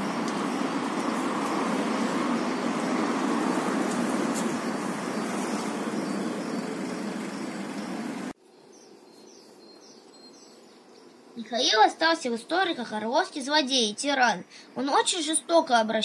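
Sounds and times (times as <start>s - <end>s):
street traffic noise: 0.0s - 8.4s
faint bird chirps: 5.2s - 11.7s.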